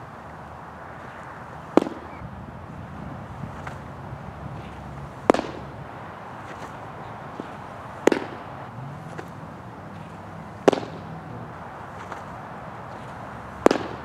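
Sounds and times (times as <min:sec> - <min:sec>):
outdoor background noise: 0:00.0 - 0:14.0
baseball smacking into mitt: 0:06.4 - 0:08.5, 0:10.6 - 0:11.1.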